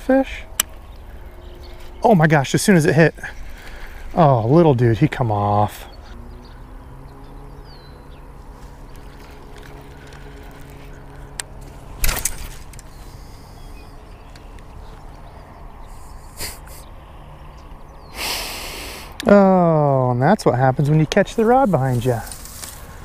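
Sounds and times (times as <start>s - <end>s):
low motor-like hum: 0.0s - 18.1s
fishing reel backlash swish and rattle: 11.6s - 13.3s.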